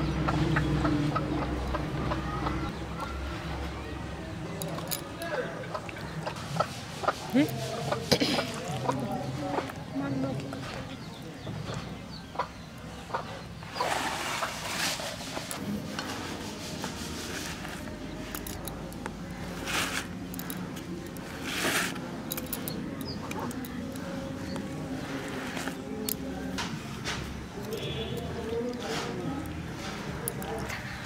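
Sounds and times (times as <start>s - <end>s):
hand rubbing wet paste: 6.3s - 9.8s, 13.7s - 31.0s.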